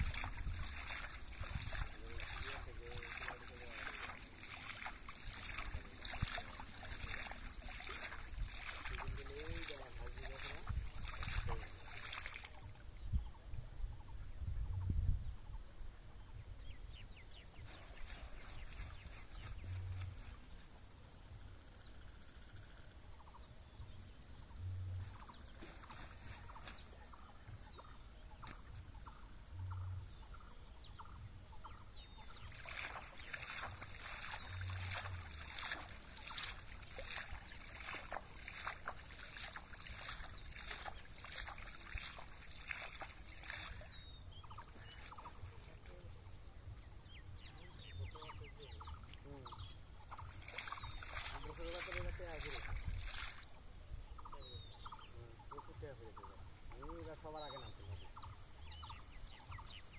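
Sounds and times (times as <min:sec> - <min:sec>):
water splashing from fishing net: 0:00.0 - 0:12.8, 0:17.7 - 0:20.5, 0:25.5 - 0:27.0, 0:32.3 - 0:46.0, 0:50.1 - 0:53.6.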